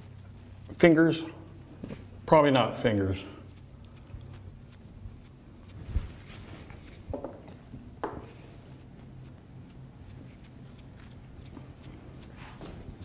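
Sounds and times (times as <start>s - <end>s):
faint room hum: 0.0s - 13.0s
handling knocks and thumps: 7.1s - 8.3s.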